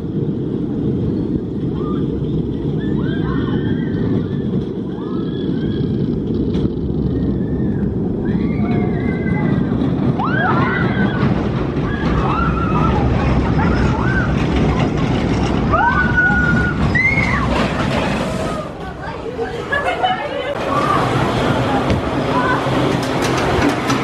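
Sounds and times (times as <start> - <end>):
roller coaster rumbling on track: 0.0 - 24.0
riders screaming and shouting: 1.5 - 18.9.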